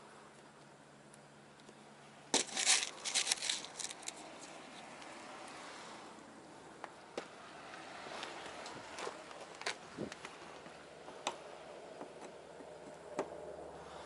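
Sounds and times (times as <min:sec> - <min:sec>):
metal screws rattling: 0:02.4 - 0:04.6.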